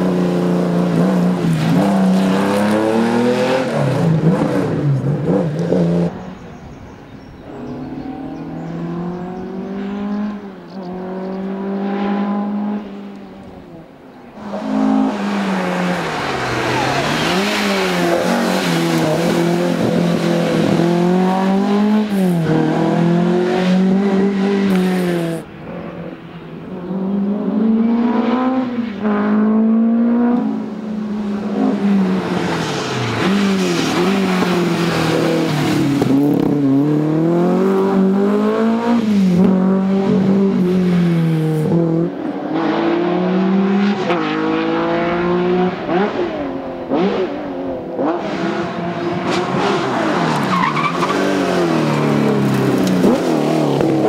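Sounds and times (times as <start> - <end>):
rally car engine at full throttle: 0.0 - 6.6, 7.5 - 54.0.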